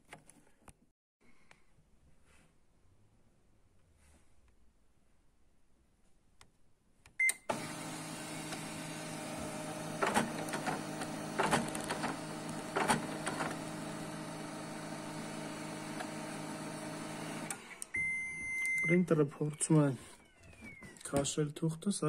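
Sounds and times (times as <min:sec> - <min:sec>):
printer beeping: 0:07.2 - 0:20.2
paper-feed motor whirring: 0:07.5 - 0:17.9.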